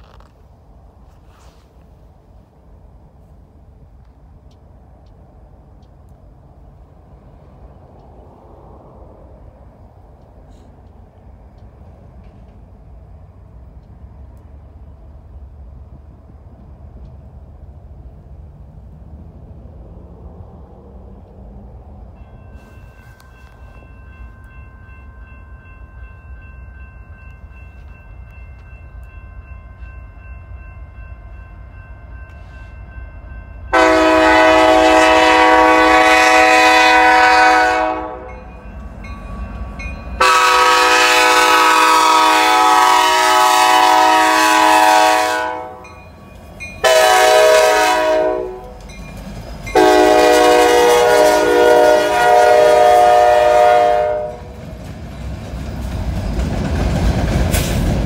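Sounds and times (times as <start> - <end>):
rumble of approaching train: 0.0 - 58.0
locomotive air horn blasts: 33.7 - 38.4, 40.2 - 46.0, 46.8 - 48.8, 49.7 - 54.5.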